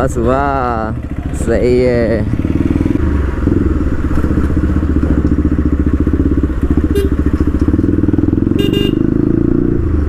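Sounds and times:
motorcycle exhaust loud pulse: 0:02.2 - 0:10.0.

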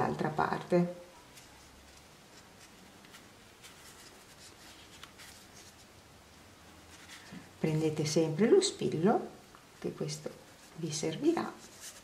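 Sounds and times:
fabric rustling: 0:01.1 - 0:08.1, 0:10.2 - 0:12.0.

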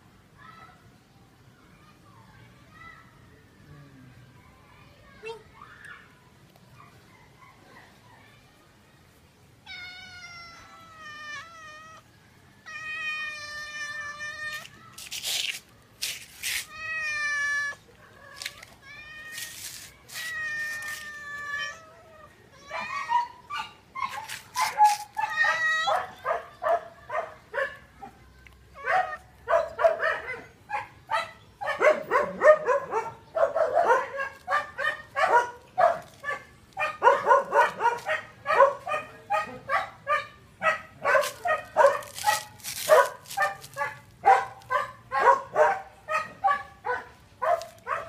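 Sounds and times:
cats meowing: 0:09.6 - 0:14.8, 0:16.6 - 0:23.4, 0:24.9 - 0:26.3.

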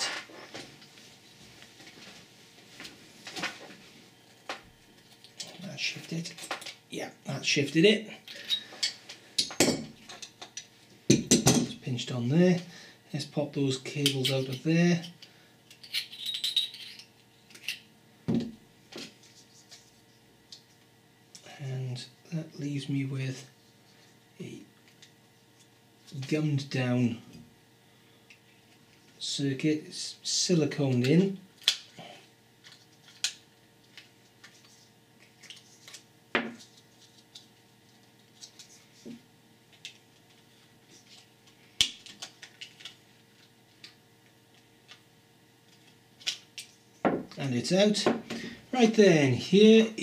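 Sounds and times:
wires clicking and scraping: 0:32.6 - 0:45.0.

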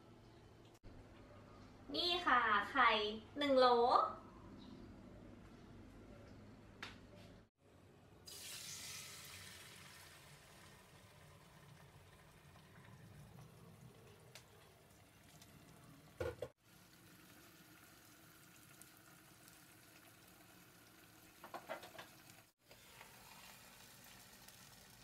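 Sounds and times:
eggs sizzling in a pan: 0:08.3 - 0:25.0.

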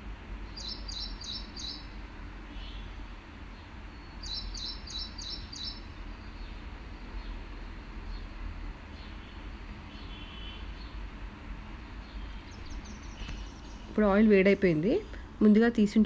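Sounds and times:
steady low hum: 0:00.0 - 0:16.0
bird chirping: 0:00.5 - 0:02.0, 0:03.9 - 0:06.6, 0:12.0 - 0:14.2.

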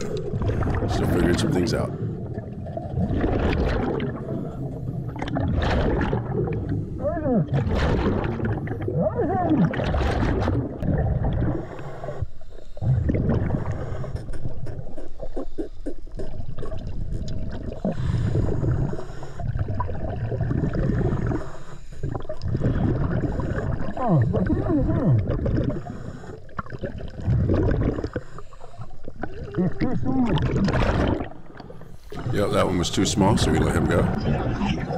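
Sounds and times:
gurgling exhaled bubbles: 0:00.0 - 0:34.9
diver inhaling through regulator: 0:17.8 - 0:19.6.

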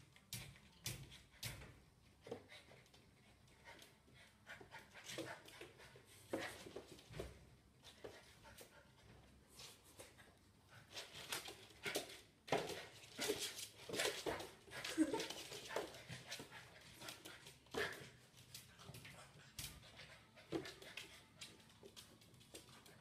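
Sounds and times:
puppy claws clicking on floor: 0:00.0 - 0:03.9, 0:10.9 - 0:23.0.

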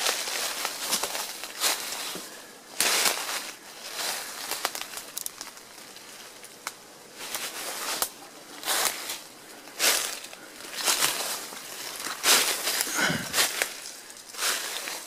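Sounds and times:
footsteps crunching on dry leaves: 0:00.0 - 0:15.0
twigs snapping: 0:04.0 - 0:09.1.

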